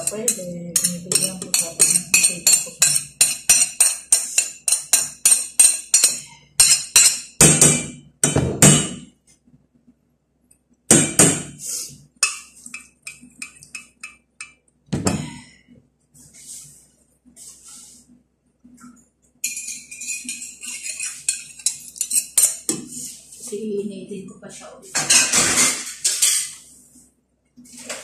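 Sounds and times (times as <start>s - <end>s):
metal spoon scraping a pot: 0.0s - 7.3s, 19.4s - 23.2s.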